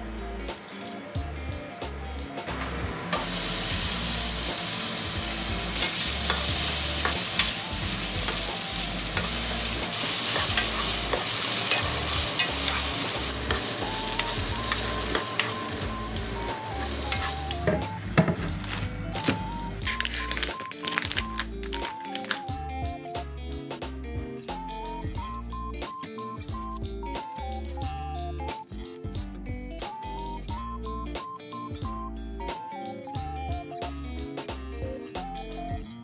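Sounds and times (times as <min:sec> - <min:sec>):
carrots sizzling in a frying pan: 0:03.0 - 0:18.8.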